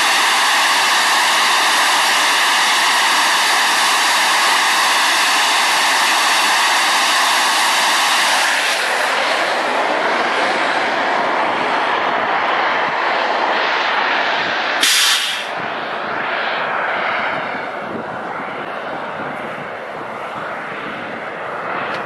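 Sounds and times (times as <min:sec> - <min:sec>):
hiss: 0:00.0 - 0:09.7, 0:14.8 - 0:15.6
drone engine running: 0:00.0 - 0:22.0.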